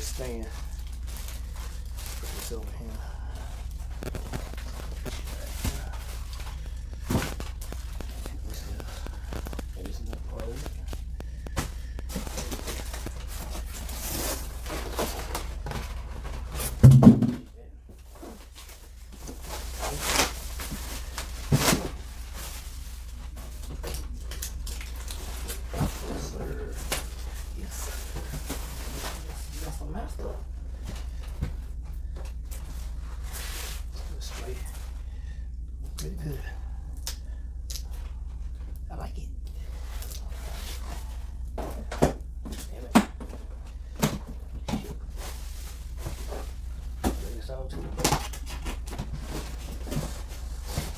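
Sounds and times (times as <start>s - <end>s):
plastic bag crinkling: 0.0s - 16.3s
steady low hum: 0.0s - 50.9s
plastic parts knocking: 16.8s - 17.5s.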